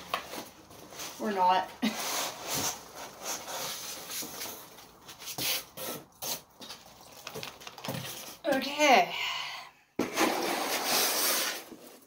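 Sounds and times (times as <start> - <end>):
cardboard scraping cardboard: 0.1 - 6.7, 10.0 - 12.0
packing peanuts shifting: 6.6 - 8.4.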